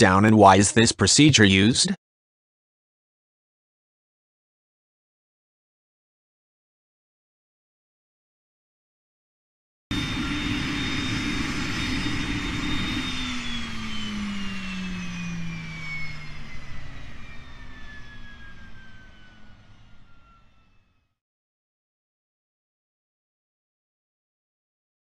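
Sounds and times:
turbine whine spooling down: 9.9 - 21.2.

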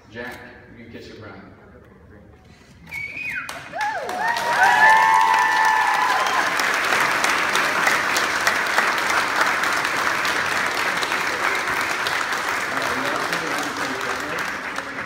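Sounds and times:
held whistle: 2.8 - 3.6
crowd applauding: 3.4 - 15.0.

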